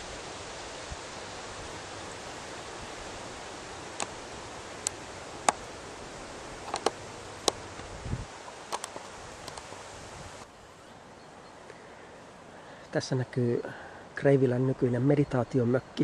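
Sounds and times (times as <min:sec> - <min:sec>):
grass brushing against camera: 0:00.0 - 0:10.5.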